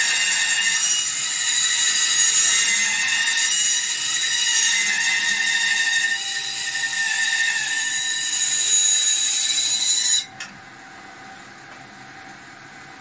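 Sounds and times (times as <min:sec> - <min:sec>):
bandsaw running: 0:00.0 - 0:07.0
bandsaw cutting wood: 0:00.0 - 0:10.3.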